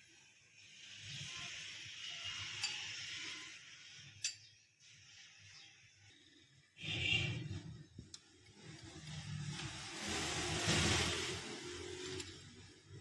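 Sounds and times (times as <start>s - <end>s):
metal spoon clinking on glass: 2.6s - 2.9s, 4.2s - 4.5s.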